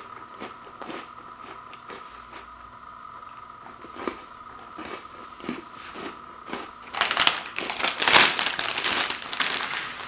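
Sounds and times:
plastic bag crinkling: 6.9s - 10.0s.

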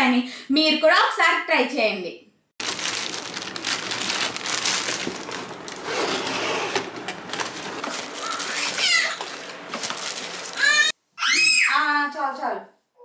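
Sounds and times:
cardboard box rustling: 2.6s - 10.6s
plastic bag crinkling: 2.6s - 10.9s.

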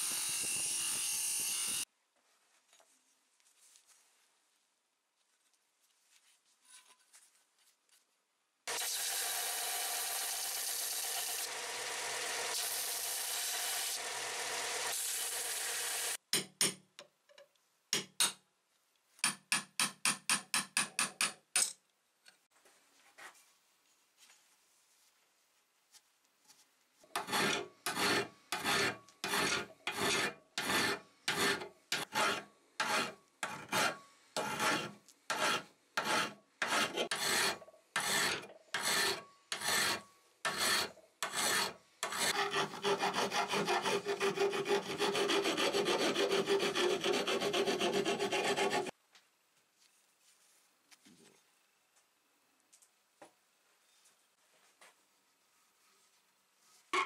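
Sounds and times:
file strokes on steel: 27.1s - 48.9s
belt sander grinding steel: 27.2s - 48.9s.

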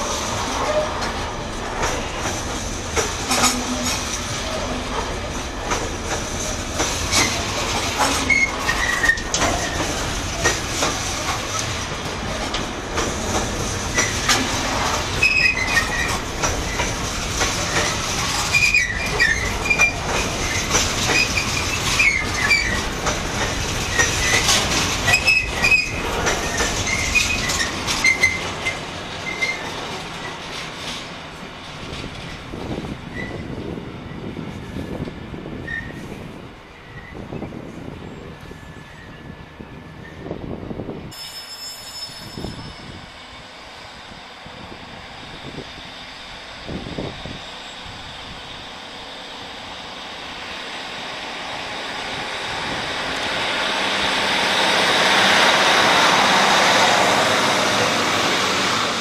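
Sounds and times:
wheels clattering over rail joints: 0.0s - 33.5s
high wheel squeals: 8.1s - 10.0s, 15.1s - 16.9s, 17.7s - 22.9s, 25.1s - 29.7s, 41.1s - 43.2s.

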